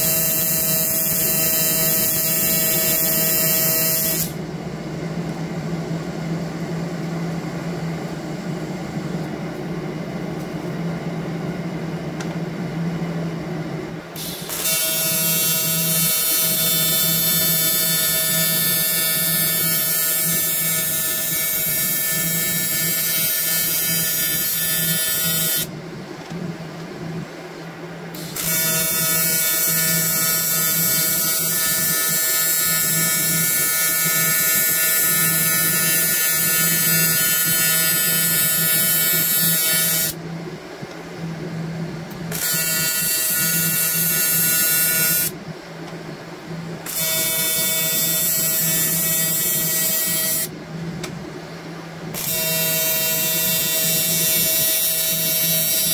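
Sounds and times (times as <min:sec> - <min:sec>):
welding arc buzzing: 0:00.0 - 0:04.4, 0:14.2 - 0:25.7, 0:28.1 - 0:40.2, 0:42.2 - 0:45.4, 0:46.8 - 0:50.5, 0:52.1 - 0:55.9
quiet steady hum: 0:00.0 - 0:55.9.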